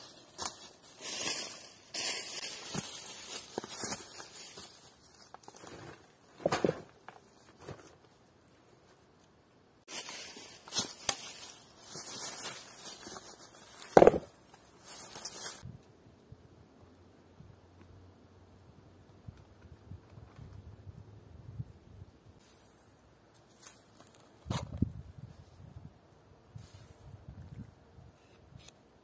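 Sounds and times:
rustling and crackling: 0:00.0 - 0:09.3, 0:09.9 - 0:15.7.

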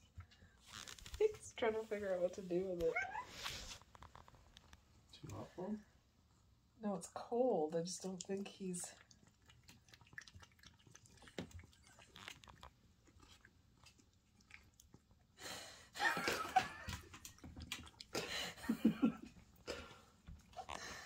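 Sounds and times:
cat lapping from metal bowl: 0:07.9 - 0:15.4, 0:16.8 - 0:18.6.

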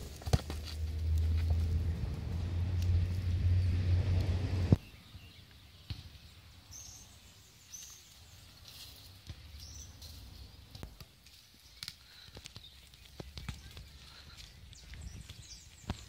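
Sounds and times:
loud low rumbling: 0:00.8 - 0:04.8.

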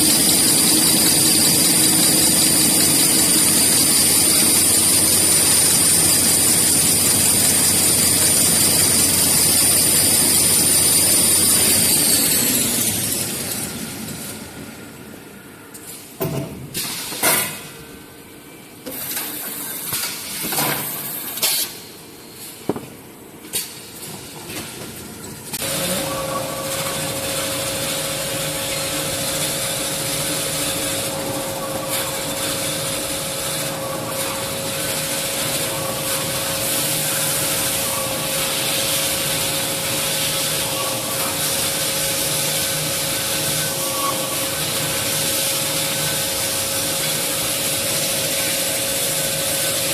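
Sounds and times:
band saw cutting with whine: 0:00.0 - 0:14.4, 0:25.6 - 0:49.9.

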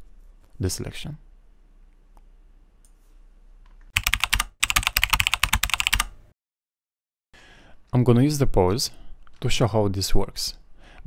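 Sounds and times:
keyboard typing clicks: 0:03.9 - 0:06.2.

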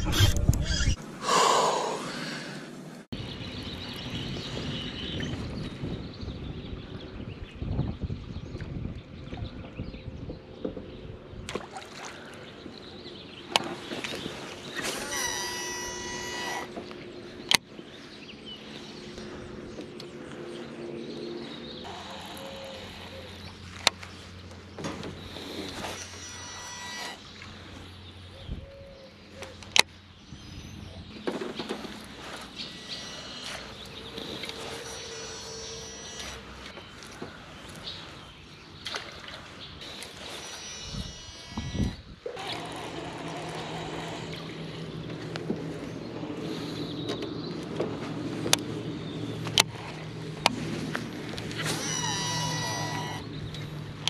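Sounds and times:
reel spool whine: 0:13.5 - 0:17.5, 0:20.2 - 0:28.3, 0:31.7 - 0:38.2, 0:39.8 - 0:47.2, 0:48.8 - 0:54.0
electric trolling motor humming: 0:14.6 - 0:17.6, 0:18.9 - 0:28.2, 0:31.8 - 0:37.8, 0:39.8 - 0:47.3, 0:48.3 - 0:54.0.

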